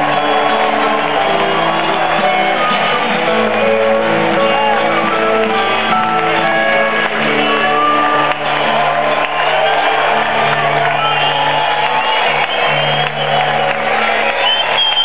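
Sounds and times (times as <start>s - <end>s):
live rock band playing: 0.0s - 10.9s.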